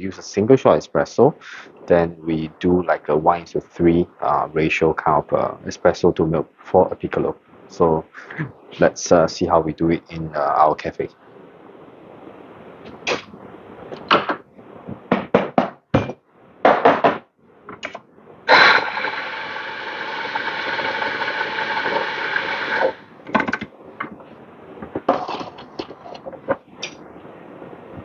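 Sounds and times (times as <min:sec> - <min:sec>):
electric coffee grinder grinding: 0:18.5 - 0:23.0.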